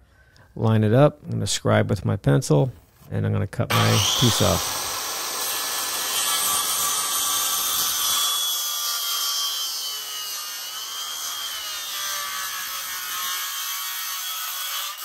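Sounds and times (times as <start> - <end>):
circular saw cutting wood: 3.7 - 15.0.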